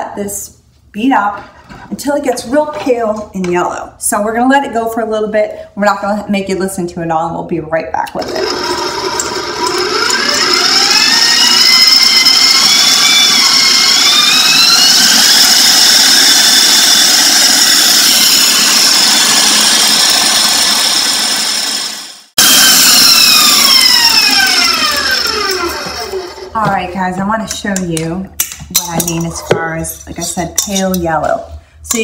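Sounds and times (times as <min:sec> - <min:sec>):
stand mixer motor whine: 0:08.2 - 0:26.5.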